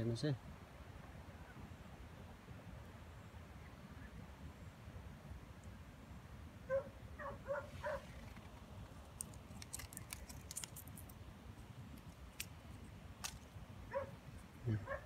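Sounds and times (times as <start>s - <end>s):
dog yipping faintly: 6.7s - 8.2s, 13.9s - 15.0s
dry husk and twigs crackling: 6.7s - 15.0s.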